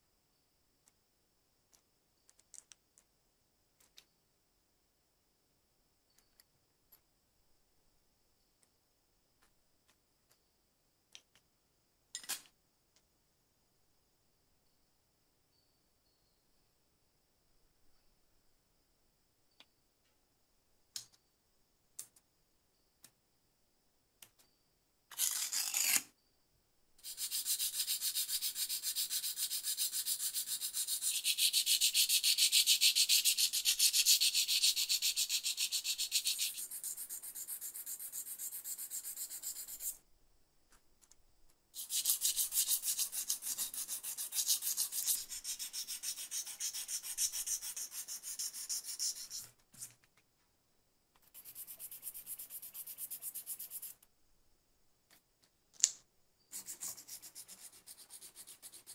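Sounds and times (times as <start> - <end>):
sandpaper rubbing on metal: 27.0 - 40.0, 41.8 - 49.5, 56.6 - 58.9.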